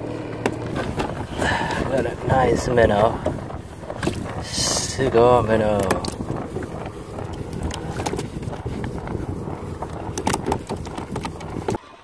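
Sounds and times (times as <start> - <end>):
water sloshing and splashing: 0.0 - 12.0
small knocks and clicks: 5.7 - 11.8.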